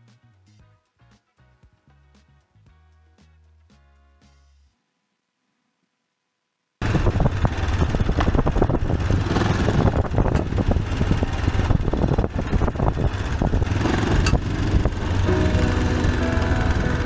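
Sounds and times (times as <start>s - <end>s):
wind noise: 6.8s - 15.2s
motorcycle engine running: 6.8s - 17.0s.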